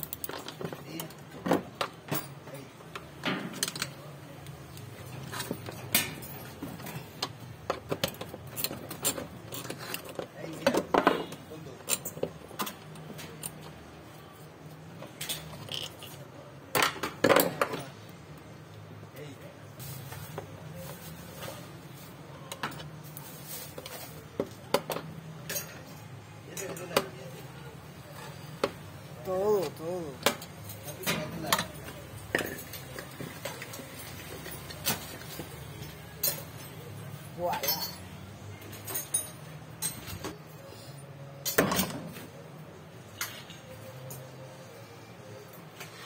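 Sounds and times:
metal tools clinking and knocking: 0.0 - 4.0, 4.8 - 13.9, 15.0 - 16.2, 23.6 - 27.2, 29.4 - 40.4, 43.1 - 44.4.

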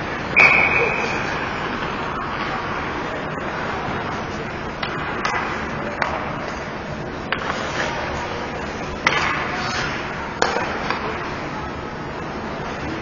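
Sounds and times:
hockey sticks clacking on puck: 4.8 - 11.3
skates scraping on ice: 7.3 - 8.4, 9.1 - 11.0.

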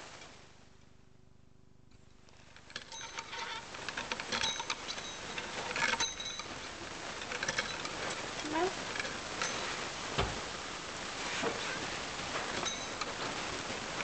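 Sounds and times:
wooden mechanism clattering and clicking: 2.2 - 9.6
small bell ringing: 6.0 - 6.5, 9.4 - 9.7, 12.6 - 13.1.

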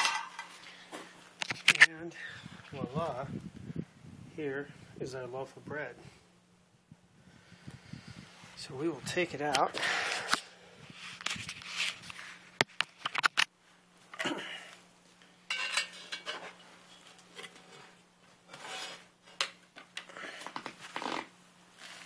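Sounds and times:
metal tongs clinking and scraping: 15.5 - 17.7.

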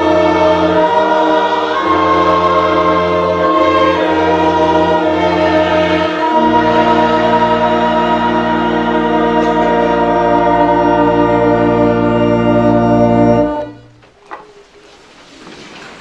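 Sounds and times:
organ holding a chord: 0.0 - 14.0
room noise: 0.0 - 16.0.

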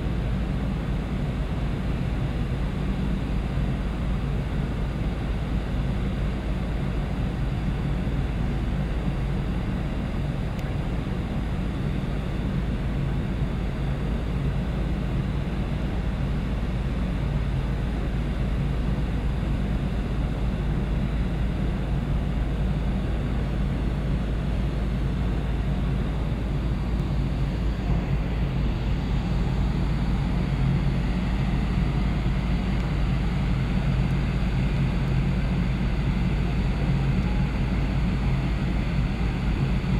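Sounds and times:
ferry engines rumbling: 25.0 - 39.9.

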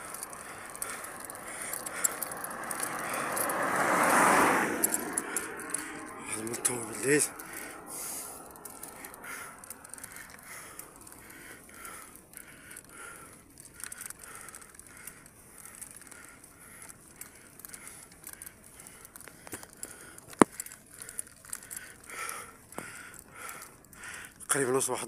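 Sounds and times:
bicycle rolling and rattling: 0.0 - 25.0
rider breathing: 0.0 - 25.0.

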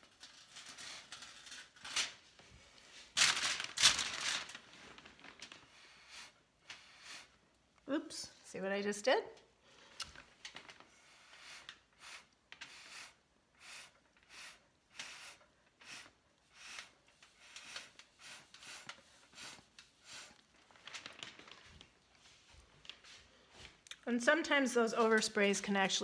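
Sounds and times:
breath puffs through a straw: 5.7 - 7.4, 11.0 - 20.4.

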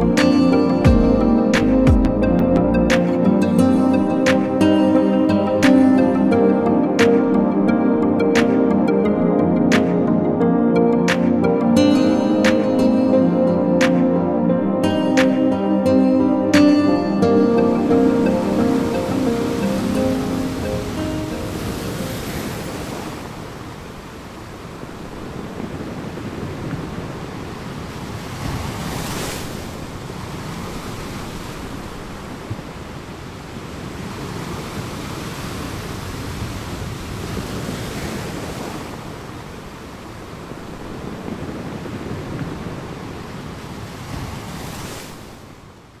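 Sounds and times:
rushing water: 11.0 - 46.0.

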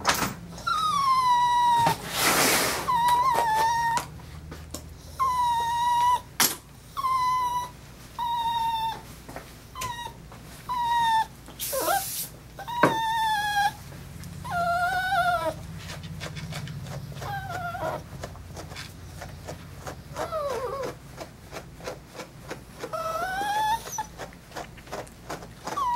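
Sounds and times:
dog whining: 0.5 - 25.9
brief hiss: 11.6 - 12.4.

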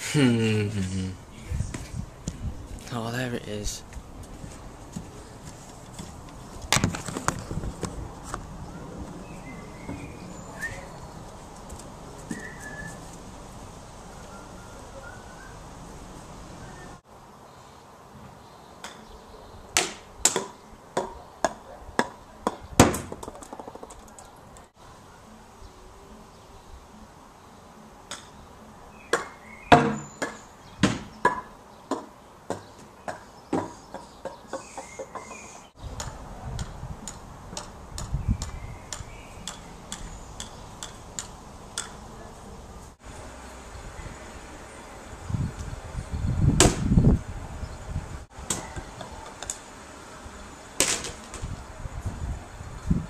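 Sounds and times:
golf balls clacking: 23.1 - 24.3.

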